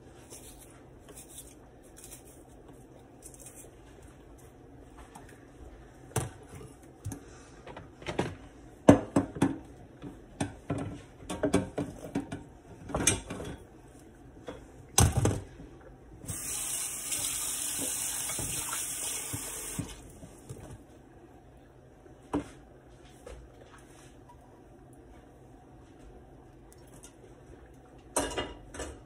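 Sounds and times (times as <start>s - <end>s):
tap running water: 16.2s - 20.1s.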